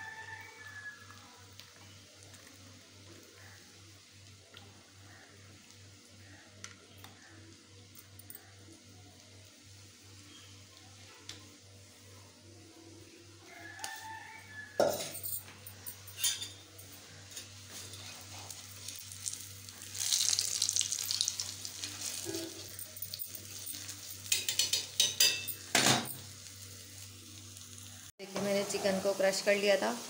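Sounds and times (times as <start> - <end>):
metal tongs clinking on wok: 14.8 - 16.6, 21.9 - 26.2
food sizzling in oil: 16.0 - 30.0.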